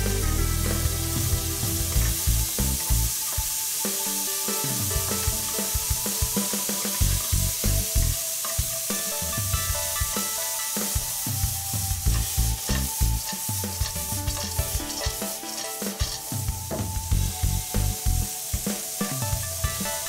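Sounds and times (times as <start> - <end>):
food sizzling in hot oil: 0.0 - 20.0
spatula scraping a wok: 12.0 - 16.4.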